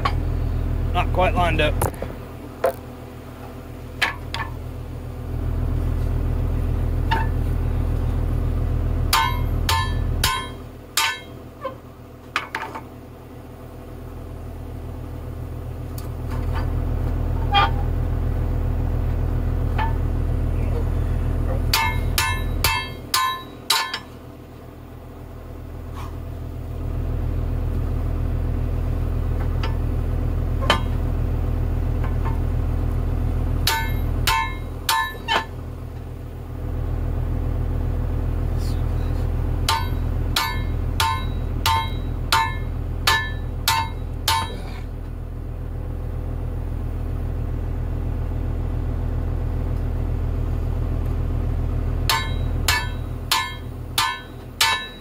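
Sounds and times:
steady low hum: 0.0 - 55.0
sledge hammer striking steel: 9.1 - 11.4, 21.7 - 24.2, 33.6 - 35.6, 39.6 - 44.9, 52.0 - 55.0.

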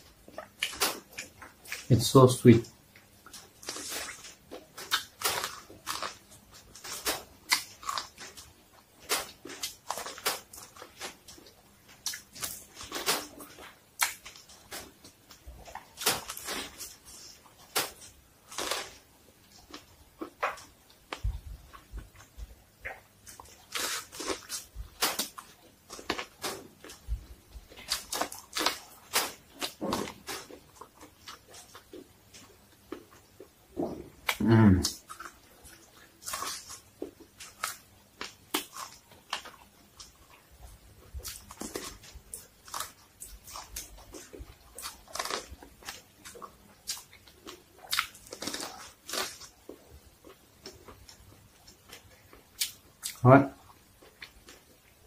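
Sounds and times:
person chewing corn crunching: 0.0 - 2.0, 2.6 - 55.0
chewing corn kernels: 34.2 - 55.0.

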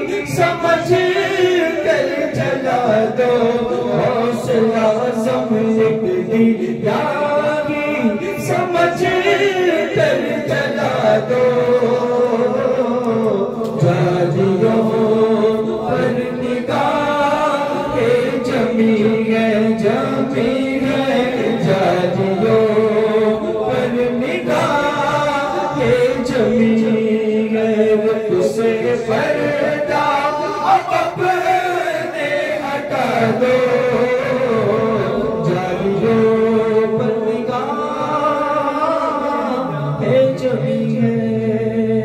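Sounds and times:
man singing into microphone: 0.0 - 42.0.

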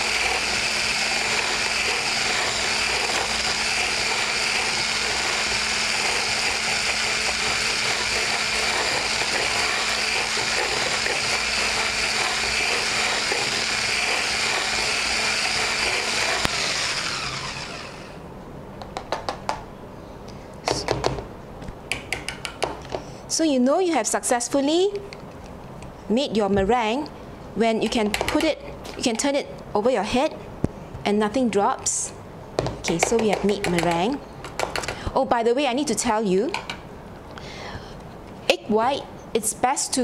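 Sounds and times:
electric hand whisk running: 0.0 - 18.2
sharp taps and clicks: 20.7 - 23.0.

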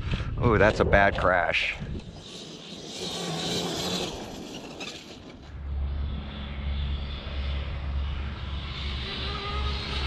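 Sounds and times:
steady low rumble: 0.0 - 2.9, 5.4 - 10.0
remote control car motor hiss: 2.0 - 5.4.

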